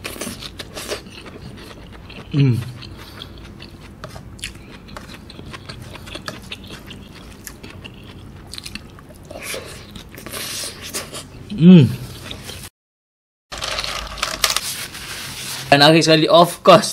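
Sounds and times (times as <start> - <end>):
person chewing food: 0.0 - 12.7.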